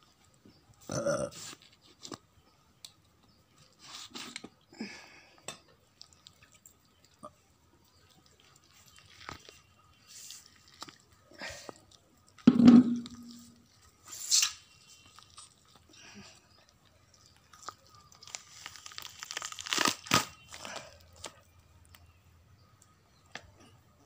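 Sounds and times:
chicken skin tearing: 0:08.7 - 0:09.7, 0:10.3 - 0:11.2, 0:17.5 - 0:21.4.

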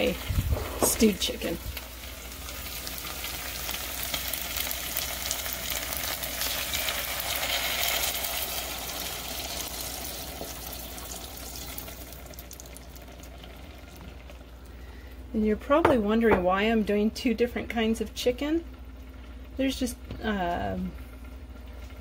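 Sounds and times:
chicken sizzling in a pan: 0:00.0 - 0:15.0
water pouring into hot pan: 0:02.0 - 0:14.4.

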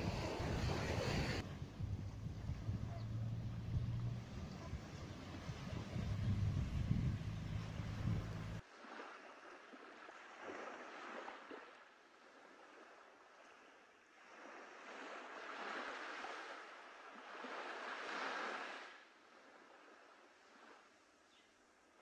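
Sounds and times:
small waves washing onto shore: 0:00.0 - 0:22.0
low rumble: 0:01.4 - 0:08.6.

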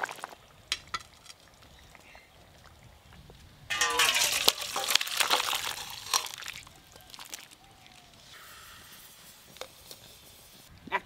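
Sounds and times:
curry splashing into metal bowl: 0:03.7 - 0:08.0.

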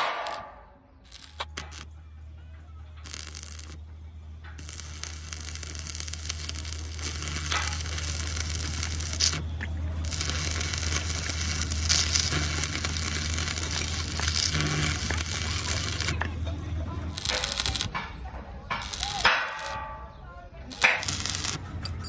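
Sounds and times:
welding arc crackling sizzle: 0:00.0 - 0:01.9, 0:03.0 - 0:03.8, 0:04.6 - 0:16.3, 0:17.1 - 0:18.0, 0:18.7 - 0:19.8, 0:20.7 - 0:21.7.

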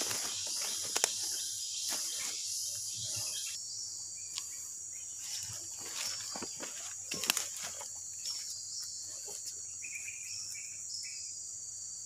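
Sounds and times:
high-pitched insect chorus: 0:00.0 - 0:12.0.

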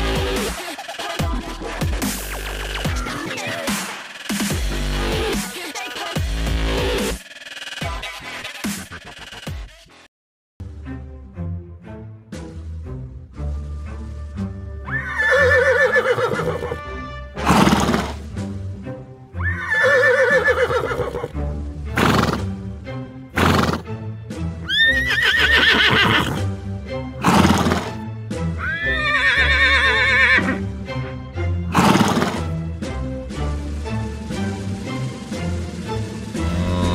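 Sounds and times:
background music: 0:00.0 - 0:09.7, 0:10.6 - 0:36.9
horse whinnying: 0:14.9 - 0:16.8, 0:17.4 - 0:18.2, 0:19.4 - 0:21.3, 0:23.4 - 0:23.8, 0:24.7 - 0:26.4, 0:27.2 - 0:28.0, 0:28.6 - 0:30.6, 0:31.7 - 0:32.4.

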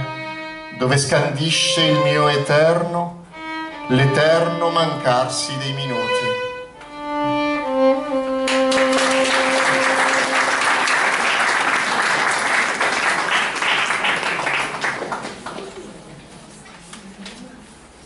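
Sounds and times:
violin long held note: 0:00.0 - 0:10.3
audience applauding: 0:08.5 - 0:16.0.

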